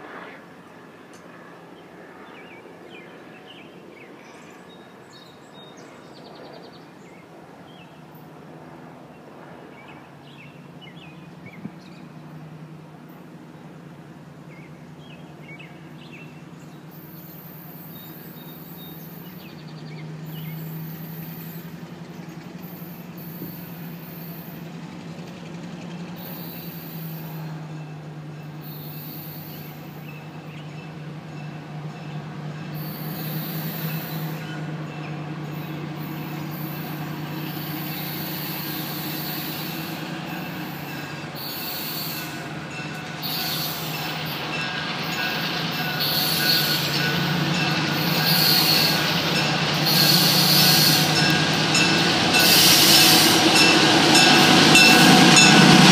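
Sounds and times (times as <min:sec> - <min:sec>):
diesel locomotive engine drone: 0:00.0 - 0:55.9
birds chirping: 0:28.6 - 0:55.8
high-pitched wheel squeal: 0:35.6 - 0:55.9.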